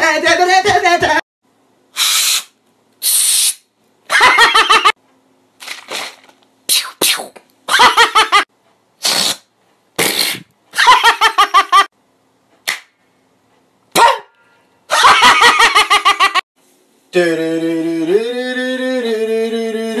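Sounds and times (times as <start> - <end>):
man laughing loudly: 4.1 - 5.0, 7.7 - 8.5, 10.8 - 11.9, 14.9 - 16.4.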